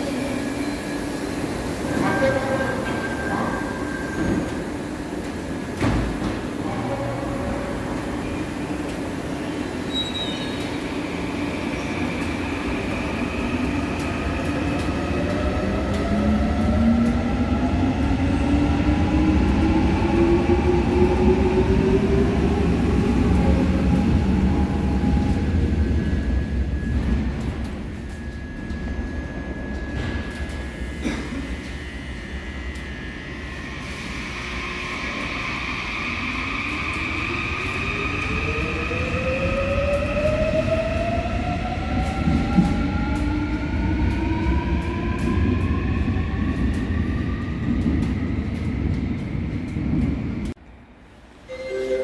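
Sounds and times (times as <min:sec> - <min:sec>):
subway train braking to a stop: 0:00.0 - 0:50.5, 0:51.2 - 0:52.0
steady high tone: 0:51.5 - 0:52.0.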